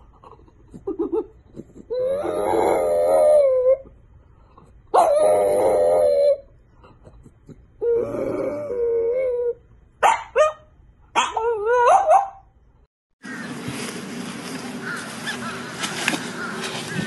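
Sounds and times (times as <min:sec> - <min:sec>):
dog howling: 0:02.0 - 0:03.9, 0:05.0 - 0:06.5.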